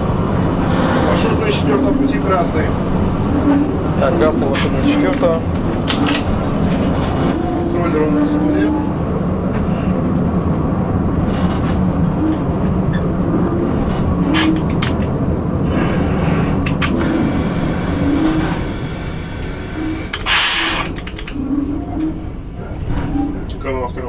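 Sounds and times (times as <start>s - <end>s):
locomotive running rumble: 0.0s - 24.0s
brief hiss: 19.5s - 20.9s.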